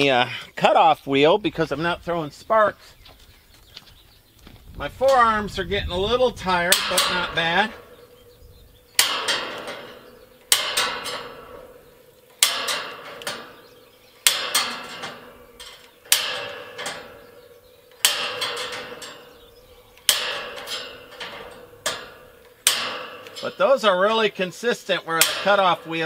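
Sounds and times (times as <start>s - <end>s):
metallic ring of wire panel: 4.8s - 26.0s
pliers snapping steel wire: 9.0s - 11.7s, 14.2s - 17.2s, 18.0s - 23.6s.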